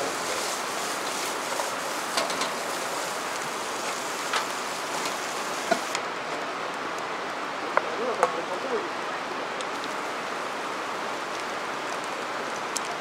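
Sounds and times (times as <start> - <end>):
food sizzling in a pan: 0.0 - 6.0, 9.7 - 11.5.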